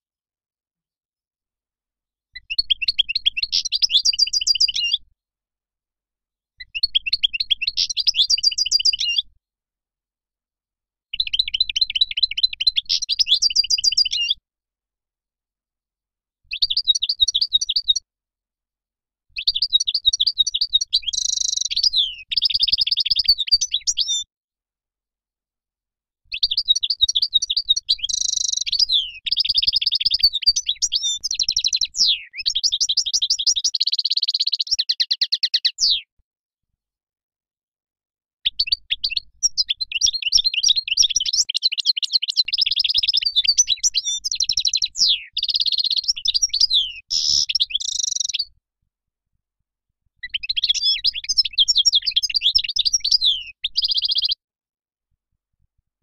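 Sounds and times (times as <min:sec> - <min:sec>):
finch twittering and trilling: 0:02.4 - 0:05.0, 0:06.7 - 0:09.2, 0:19.4 - 0:24.2, 0:26.3 - 0:36.0, 0:38.5 - 0:48.5, 0:50.2 - 0:54.4.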